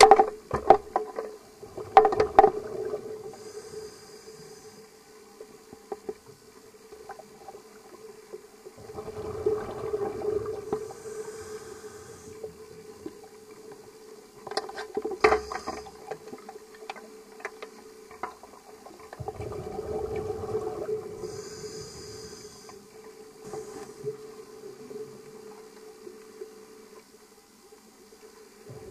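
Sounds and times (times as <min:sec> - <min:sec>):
steady hum: 0:01.5 - 0:18.2, 0:19.6 - 0:28.9
underwater breath bubbles: 0:01.6 - 0:04.9, 0:08.8 - 0:12.8, 0:19.2 - 0:24.3.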